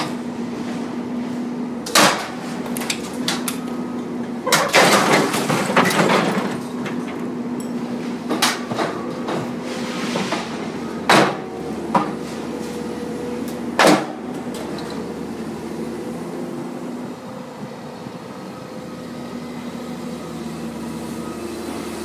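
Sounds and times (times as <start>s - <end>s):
excavator engine running: 0.0s - 22.0s
metal and debris crashing: 4.5s - 7.1s.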